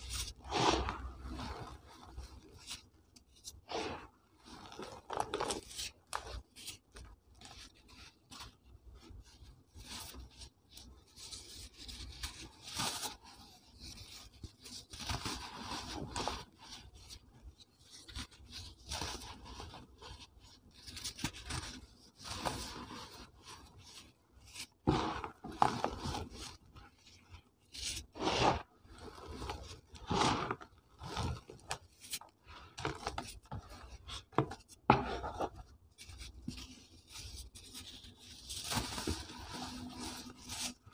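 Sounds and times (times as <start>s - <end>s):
hands rubbing cement blocks: 27.7s - 40.9s.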